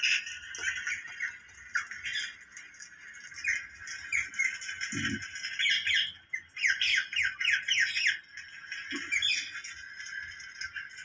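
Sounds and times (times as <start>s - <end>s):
parakeet squawking: 3.4s - 8.2s.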